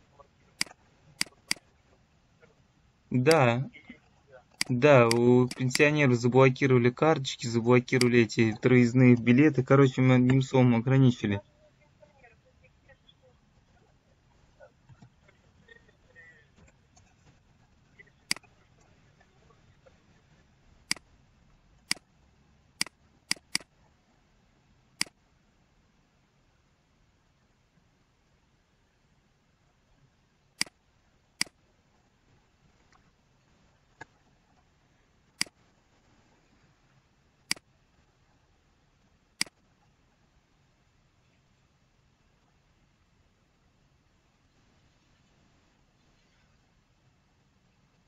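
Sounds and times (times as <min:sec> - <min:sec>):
faint room hiss: 0:00.0 - 0:48.0
computer mouse clicks: 0:00.6 - 0:01.7, 0:04.6 - 0:06.0, 0:22.8 - 0:23.7, 0:35.4 - 0:35.6, 0:37.5 - 0:37.7, 0:39.4 - 0:39.6
computer mouse button clicking: 0:22.8 - 0:23.7.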